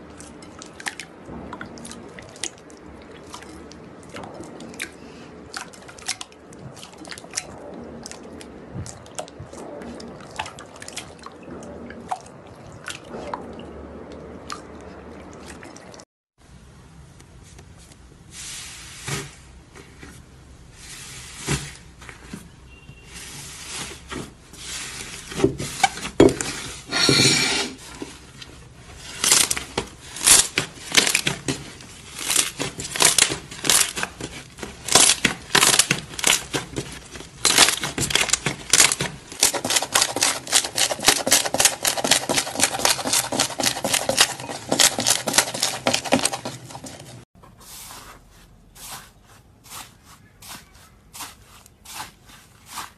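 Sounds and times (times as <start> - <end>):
slime crackling and popping: 34.8 - 46.4.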